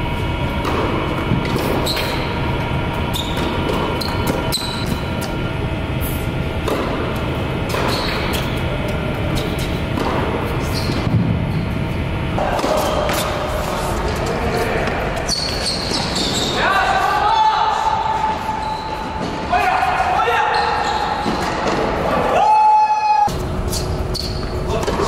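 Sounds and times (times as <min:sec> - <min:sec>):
low background hum: 0:00.0 - 0:25.0
tennis balls struck by rackets: 0:00.5 - 0:02.3, 0:06.4 - 0:11.4.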